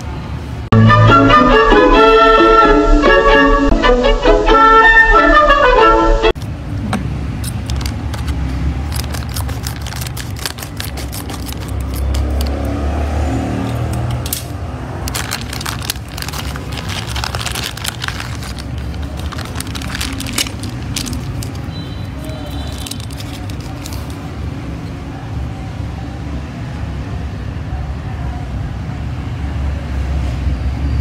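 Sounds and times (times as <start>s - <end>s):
plastic packaging crinkling: 7.4s - 12.7s, 14.9s - 24.4s.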